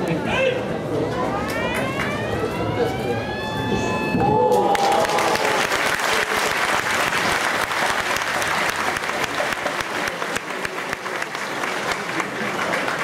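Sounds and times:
crowd applauding: 4.4s - 13.0s.

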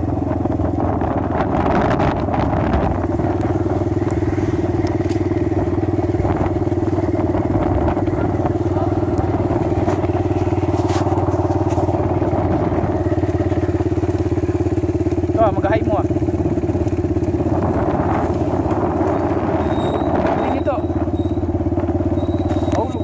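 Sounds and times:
motorcycle engine running: 0.0s - 23.0s.

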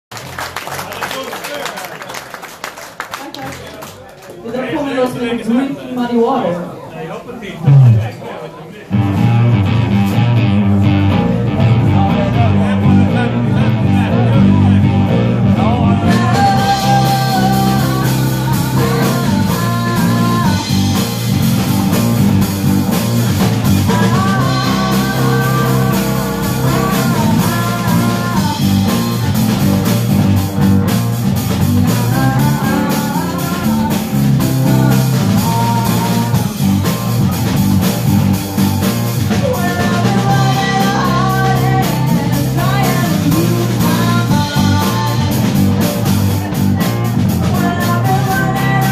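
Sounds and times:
blues rock band playing: 7.6s - 8.2s, 8.8s - 48.9s
woman singing: 15.7s - 21.1s, 23.7s - 29.8s, 31.5s - 36.9s, 39.3s - 48.9s.

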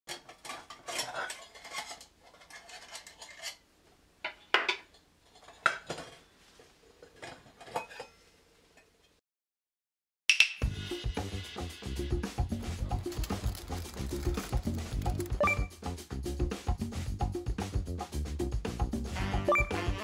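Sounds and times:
metal rubbing and scraping: 0.3s - 3.6s, 11.9s - 15.5s.

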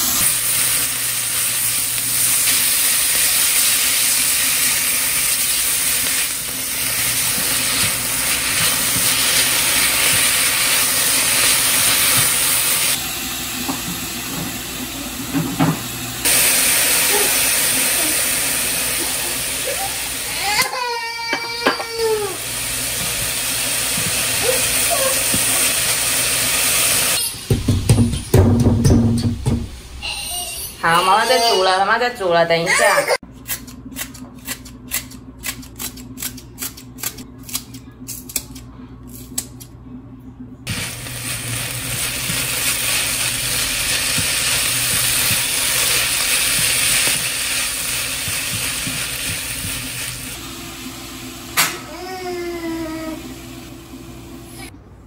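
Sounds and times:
food sizzling in a frying pan: 0.0s - 27.3s, 40.7s - 51.4s
toddler whining cry: 19.6s - 22.4s, 24.4s - 25.4s, 30.0s - 31.8s, 51.9s - 53.3s.

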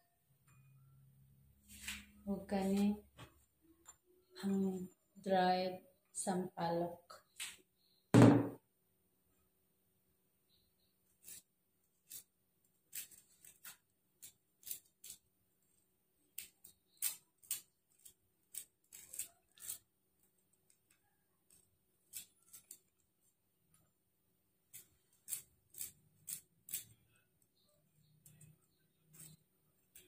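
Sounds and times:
dried pods cracking: 16.3s - 23.2s.

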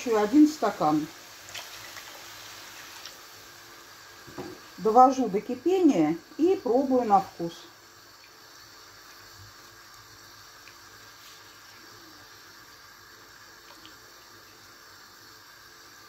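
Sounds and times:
sauce heating in a pan: 0.0s - 16.0s.

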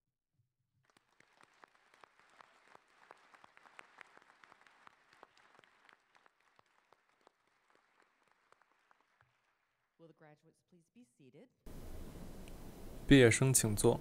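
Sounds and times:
audience applause: 0.9s - 9.8s.

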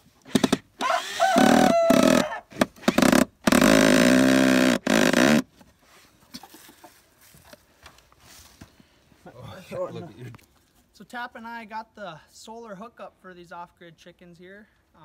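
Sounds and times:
cordless drill driving screw into wood: 0.2s - 5.5s.

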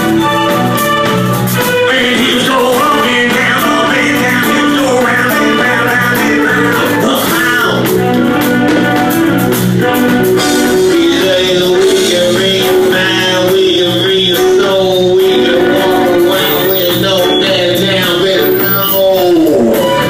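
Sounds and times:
electric guitar: 0.0s - 20.0s
live band music: 0.0s - 20.0s
person singing: 1.6s - 8.1s, 10.4s - 20.0s.

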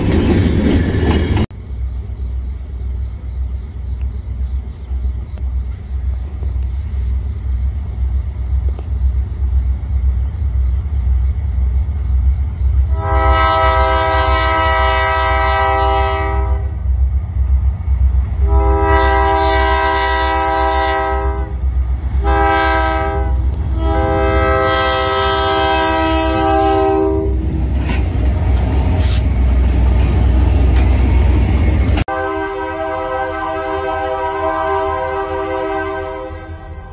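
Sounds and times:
diesel locomotive rumble: 0.0s - 36.9s
locomotive horn blasts: 12.9s - 16.8s, 18.4s - 21.6s, 22.2s - 27.4s, 32.0s - 36.9s.

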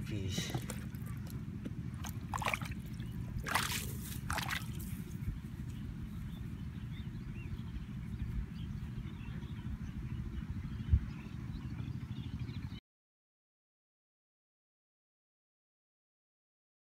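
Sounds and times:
muddy water sloshing and splashing: 0.0s - 5.8s
steady low rumble: 0.0s - 12.8s.

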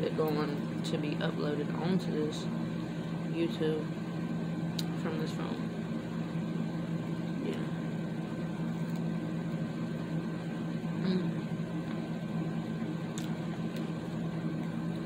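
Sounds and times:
low machine hum: 0.0s - 15.0s
soft chewing clicks: 8.8s - 9.1s, 13.1s - 14.8s.

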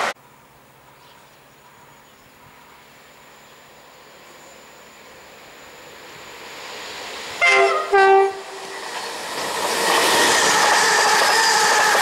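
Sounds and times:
train passing at speed: 0.0s - 12.0s
two-tone train horn: 7.4s - 8.7s.

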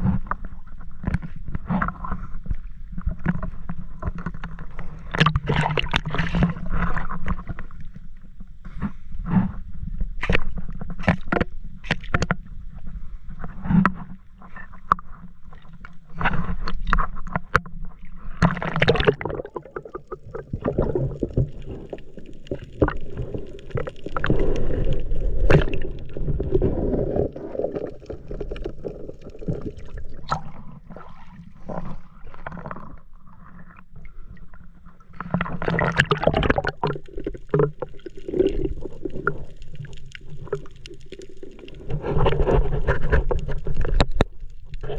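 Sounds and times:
water sloshing and gurgling: 0.0s - 44.9s.

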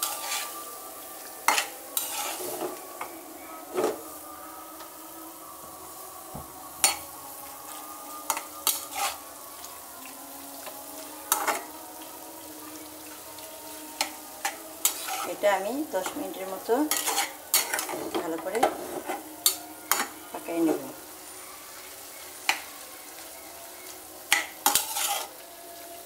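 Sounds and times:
spatula scraping a pan: 0.0s - 0.6s, 1.4s - 2.8s, 3.7s - 4.2s, 6.8s - 7.0s, 7.6s - 9.3s, 10.6s - 11.7s, 12.7s - 20.1s, 24.3s - 25.4s
meat sizzling: 0.0s - 26.0s.

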